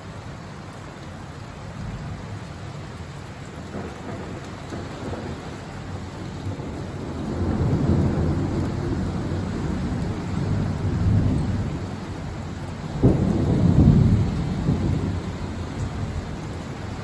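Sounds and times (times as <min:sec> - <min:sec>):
steady rain: 0:00.0 - 0:17.0
thunder rumbling: 0:03.5 - 0:17.0.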